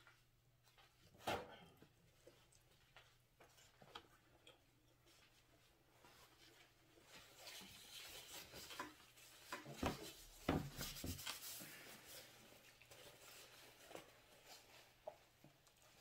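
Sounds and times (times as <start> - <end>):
paper napkin rustling and crinkling: 6.0 - 16.0.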